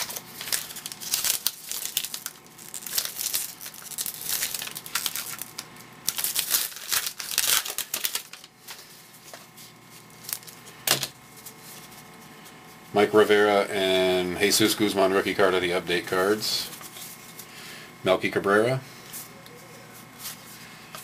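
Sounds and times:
wrapper tearing and crinkling: 0.0s - 8.8s, 10.0s - 10.6s
cards rustling: 0.0s - 12.6s.

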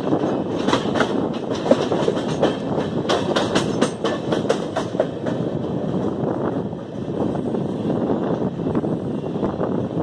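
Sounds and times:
train running rumble: 0.0s - 10.0s
train wheels clattering on rails: 0.0s - 10.0s.

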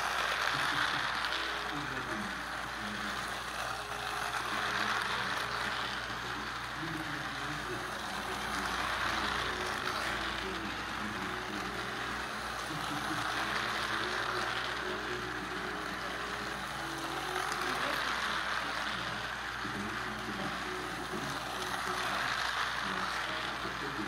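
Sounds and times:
toy train motor whirring: 0.0s - 24.0s
toy train wheels clattering: 0.0s - 24.0s.

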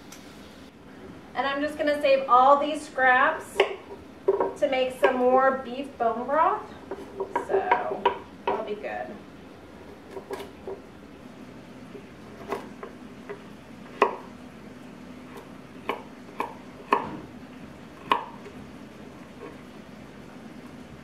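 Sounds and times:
knife chopping on wooden board: 12.3s - 14.3s, 15.3s - 17.3s, 18.0s - 18.6s.

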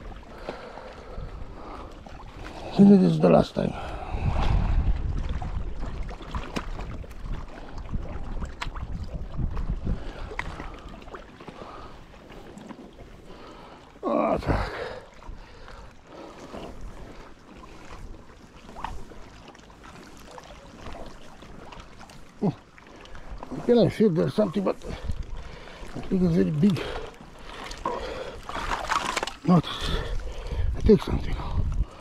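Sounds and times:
wind rumbling on microphone: 0.0s - 2.8s, 3.6s - 12.0s, 24.8s - 27.0s, 29.7s - 32.0s.

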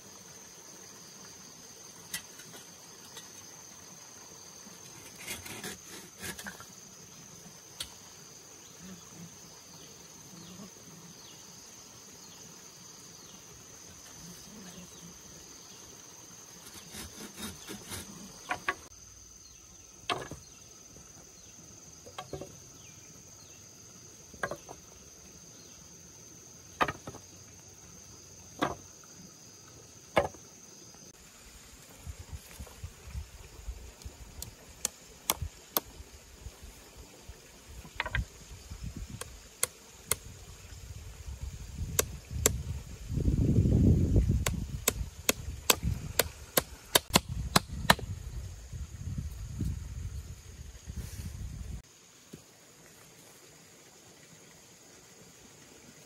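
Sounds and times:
insects chirring: 0.0s - 56.0s
bamboo being sawn: 4.9s - 6.7s, 16.6s - 18.9s
bamboo poles knocking: 17.2s - 18.9s, 20.1s - 20.4s, 22.0s - 22.6s, 24.4s - 24.8s, 26.8s - 27.2s, 28.6s - 28.8s, 30.2s - 30.4s, 37.9s - 38.3s, 44.4s - 48.0s.

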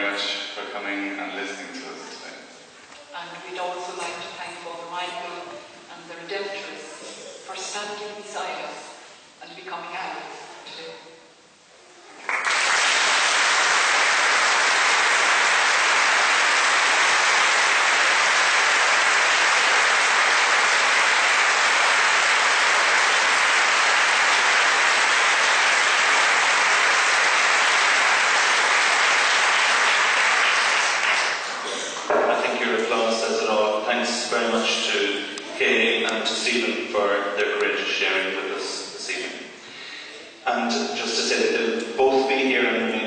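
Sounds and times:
congregation applauding: 12.0s - 37.7s.

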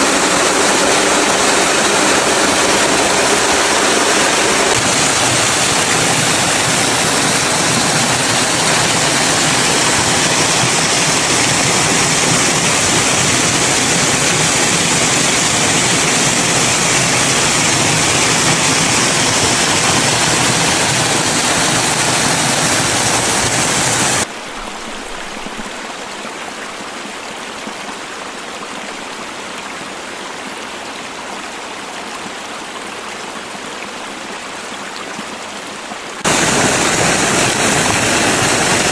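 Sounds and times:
waterfall splashing into pool: 0.0s - 27.8s, 36.2s - 38.9s.

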